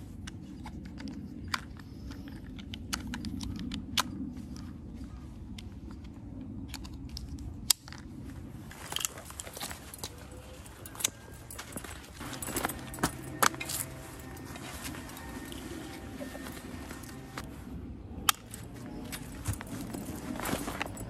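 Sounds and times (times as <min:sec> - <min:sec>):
steady low rumble: 0:00.0 - 0:21.0
plastic buckles clicking: 0:00.2 - 0:04.2, 0:08.8 - 0:17.5.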